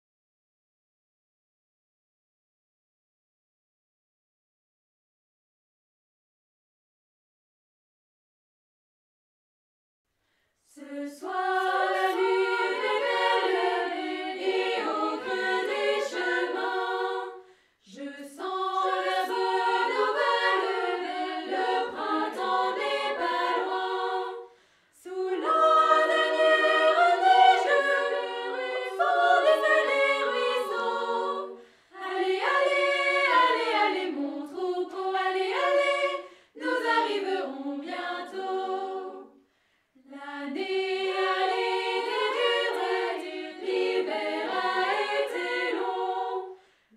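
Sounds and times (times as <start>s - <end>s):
choir singing a cappella: 10.7s - 46.9s.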